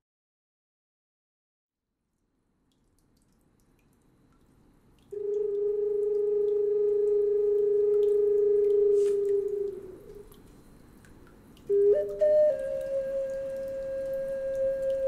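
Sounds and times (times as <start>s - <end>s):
long held musical note: 5.2s - 10.4s, 11.7s - 15.0s.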